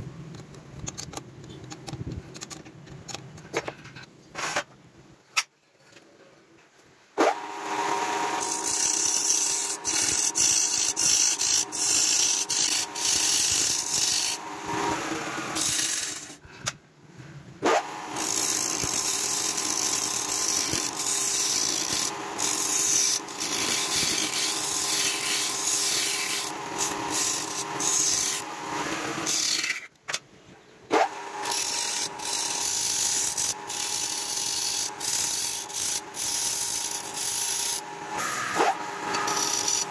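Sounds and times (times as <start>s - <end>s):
turning tool scraping wood: 8.1s - 16.4s, 18.1s - 29.8s, 31.4s - 39.9s.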